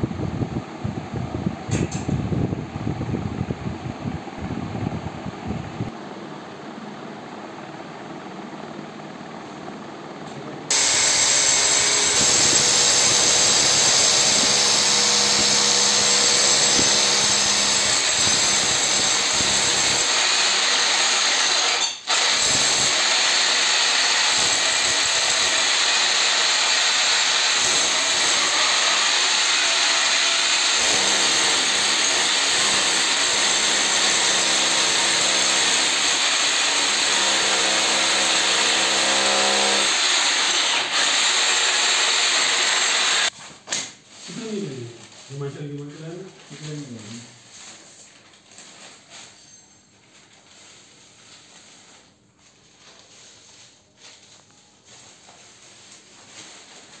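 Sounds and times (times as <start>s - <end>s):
electric drill boring into brick: 10.7s - 43.3s.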